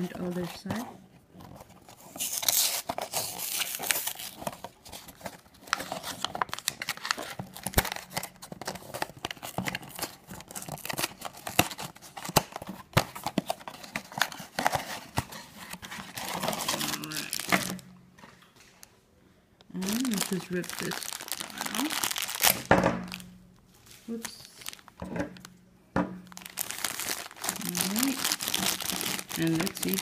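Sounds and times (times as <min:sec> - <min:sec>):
cardboard rustling and scraping: 0:00.0 - 0:18.8
cardboard tearing: 0:01.5 - 0:17.8, 0:19.8 - 0:23.2, 0:26.4 - 0:30.0.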